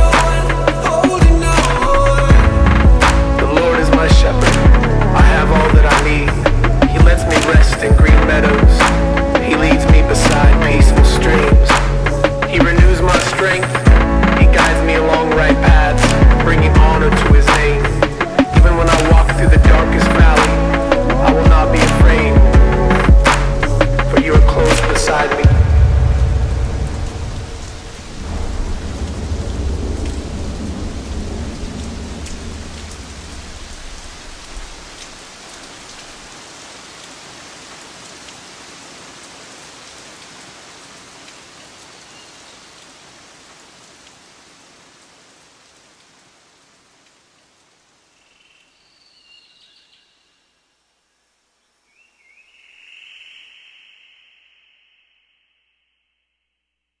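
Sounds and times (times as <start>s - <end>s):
rain falling: 0.0s - 54.8s
deep thunder rumble: 1.2s - 13.2s, 13.9s - 34.8s.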